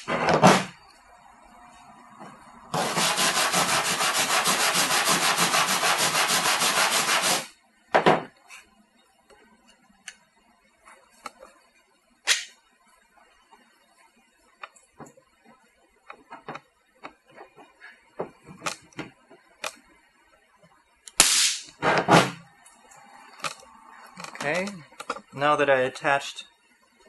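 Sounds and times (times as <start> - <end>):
abrasive rubbing aluminum panel: 2.8 - 7.5.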